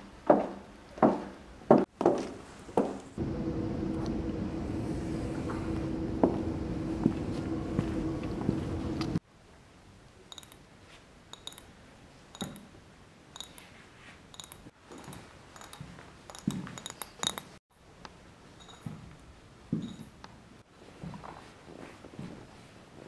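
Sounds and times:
loud steady hum: 3.2 - 9.2.

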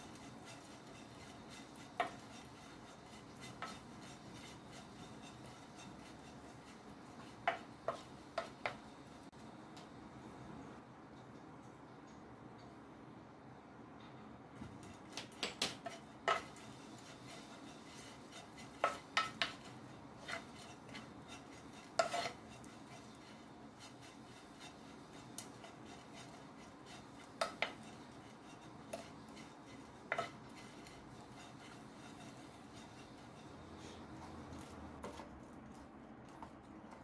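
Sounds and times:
spatula scraping frying pan: 0.0 - 9.4, 15.8 - 35.3.

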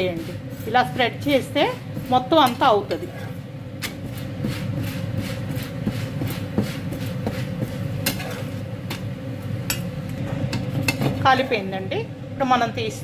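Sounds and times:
steady low hum: 0.0 - 13.0
spatula clacking on griddle: 3.8 - 9.0.

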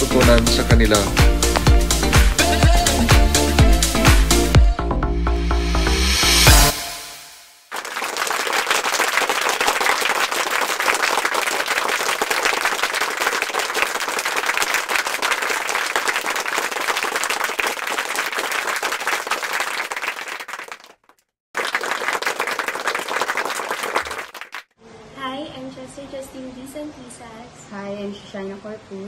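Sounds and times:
crowd applauding: 0.0 - 3.1, 7.7 - 24.7.

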